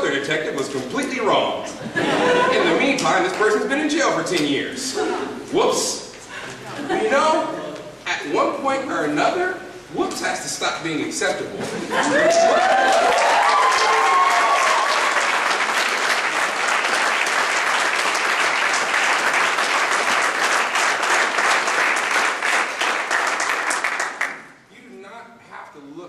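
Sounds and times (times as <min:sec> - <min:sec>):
people whooping and cheering: 0:11.9 - 0:15.8
audience applauding: 0:12.0 - 0:24.5.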